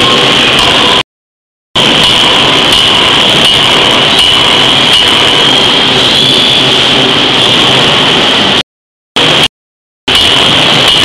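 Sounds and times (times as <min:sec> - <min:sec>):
high machine whine: 0:00.0 - 0:01.1, 0:01.8 - 0:08.6, 0:09.2 - 0:09.5, 0:10.1 - 0:11.0
forging machinery din: 0:01.8 - 0:07.8, 0:10.1 - 0:11.0.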